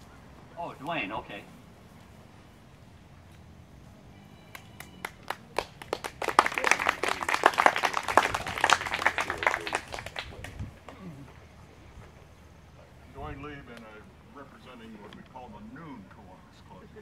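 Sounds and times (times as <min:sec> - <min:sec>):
audience clapping: 0:04.5 - 0:10.6.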